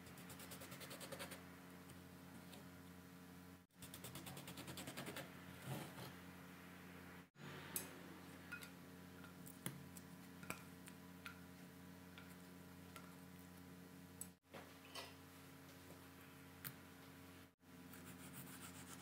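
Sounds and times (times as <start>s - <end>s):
faint steady hum: 0.0s - 19.0s.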